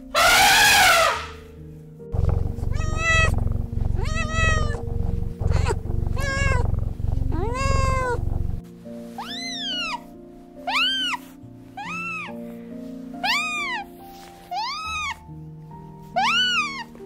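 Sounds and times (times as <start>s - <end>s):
cat meowing: 2.2s - 8.6s, 9.2s - 11.2s, 11.8s - 12.4s, 13.2s - 13.9s, 14.5s - 15.2s, 16.2s - 16.9s.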